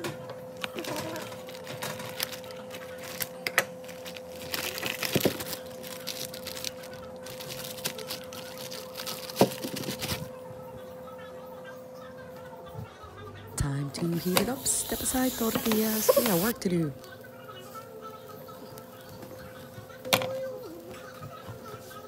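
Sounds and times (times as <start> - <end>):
plastic bag crinkling: 0.6 - 10.3.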